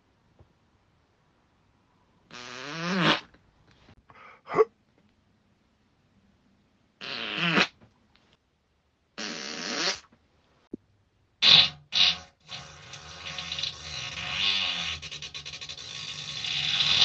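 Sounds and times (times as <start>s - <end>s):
person farting: 2.3s - 3.3s, 7.0s - 7.8s, 9.2s - 10.1s, 11.4s - 15.1s.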